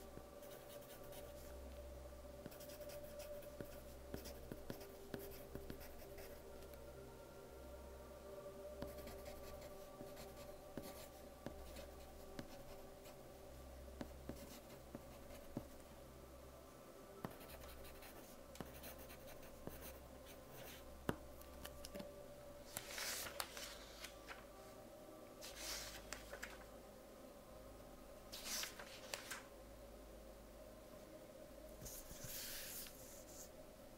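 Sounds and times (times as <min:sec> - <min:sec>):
pencil scratching on paper: 0:02.4 - 0:06.4, 0:17.3 - 0:20.8.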